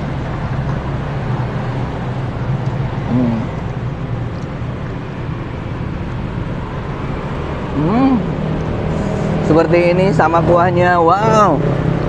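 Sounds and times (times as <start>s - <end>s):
vehicle engines humming: 0.0s - 12.0s
short vocal hum: 3.1s - 3.6s.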